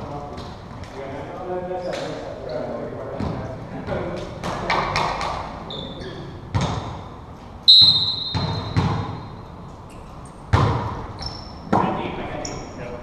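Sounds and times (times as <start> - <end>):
referee's whistle: 7.7 - 8.9
volleyball thuds: 7.9 - 9.2, 10.5 - 11.1.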